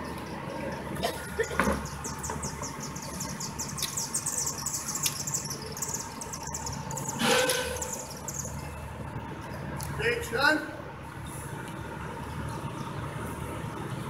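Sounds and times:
rapid high-pitched chirping: 1.4 - 8.8.

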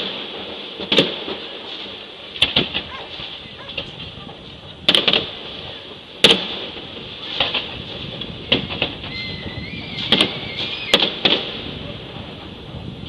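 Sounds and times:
fireworks bangs: 0.0 - 13.0
thin rising whistle: 9.1 - 11.0.

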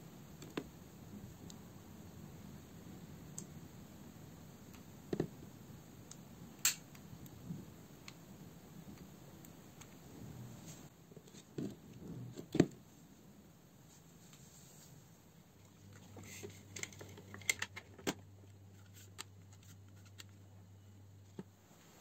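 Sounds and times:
faint handling clicks and knocks: 15.7 - 20.4.

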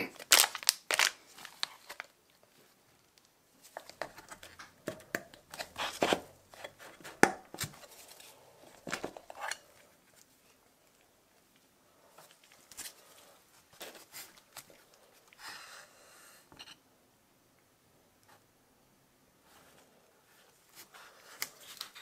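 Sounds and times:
plastic bag handling: 0.1 - 2.2.

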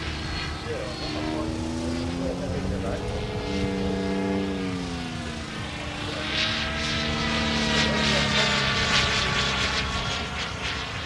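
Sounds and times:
rc helicopter whining: 0.0 - 11.0.

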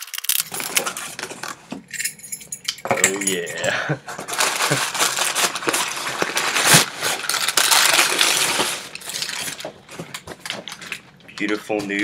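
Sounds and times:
packing material rustling: 0.0 - 1.7, 4.1 - 12.0
cardboard box tearing open: 4.4 - 8.9.

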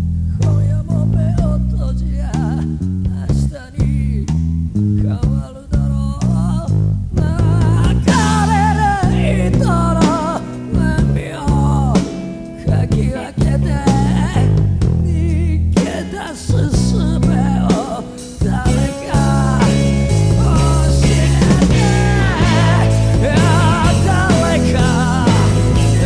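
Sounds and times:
man singing with vibrato: 0.4 - 4.3, 5.0 - 26.0
rock band playing: 7.2 - 26.0.

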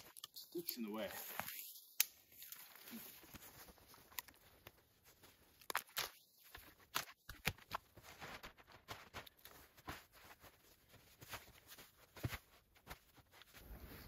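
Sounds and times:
snow crunching and scraping: 7.6 - 14.0.

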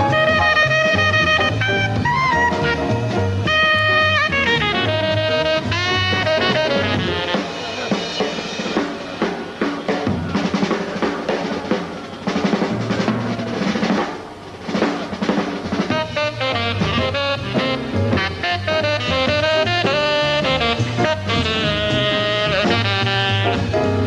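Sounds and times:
tenor saxophone: 0.0 - 8.2, 15.8 - 24.0
jazz drum kit playing: 0.0 - 24.0.

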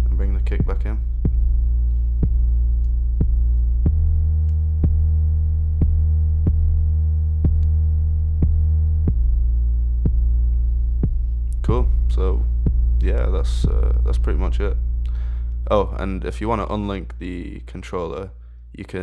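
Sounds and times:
electronic kick drum: 0.0 - 15.1
sustained synth bass: 0.0 - 19.0.

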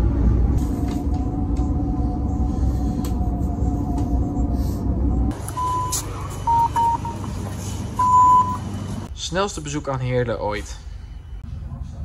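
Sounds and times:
train rumbling inside carriage: 0.0 - 12.0
card reader beeps: 5.4 - 7.2, 8.0 - 8.7.

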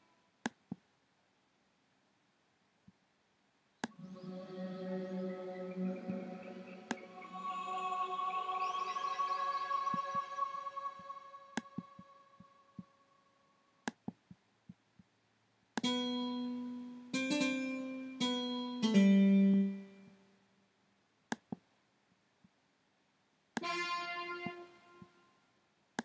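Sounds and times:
synthesizer piano notes: 3.9 - 12.5, 15.8 - 20.2, 23.6 - 25.1.

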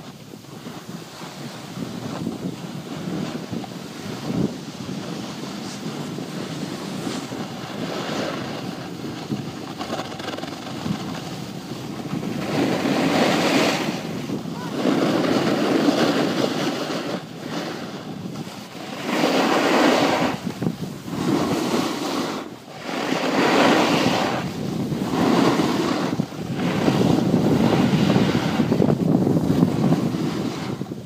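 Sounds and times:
snowboard scraping over snow: 0.0 - 31.0
wind rushing past microphone: 0.0 - 31.0.

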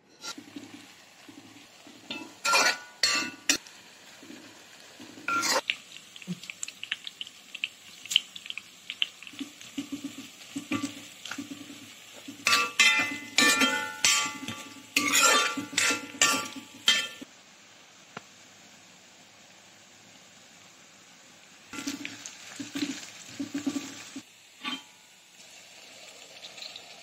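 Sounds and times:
metal spoon scraping a wok: 0.0 - 0.6, 2.1 - 3.6, 5.3 - 5.7, 12.4 - 17.2, 24.6 - 24.9
oil sizzling and crackling: 0.0 - 27.0.

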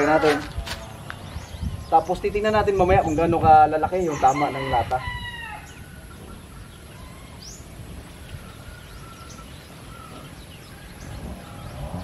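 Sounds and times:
rooster crowing: 0.0 - 0.9, 4.1 - 6.0
faint bird chirps: 5.4 - 12.0.

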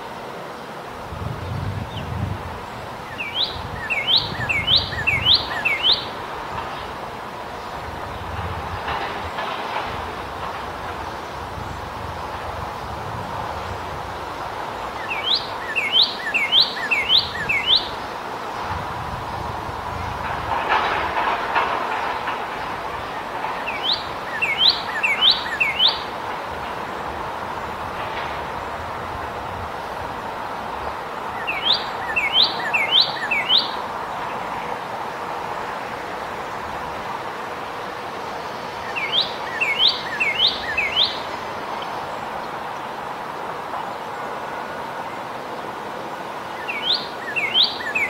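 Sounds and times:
background hiss: 0.0 - 48.0
steady background noise: 0.0 - 48.0
cardinal whistling song: 3.0 - 6.2, 15.0 - 18.0, 23.7 - 26.1, 31.4 - 33.8, 38.8 - 41.3, 46.5 - 48.0.

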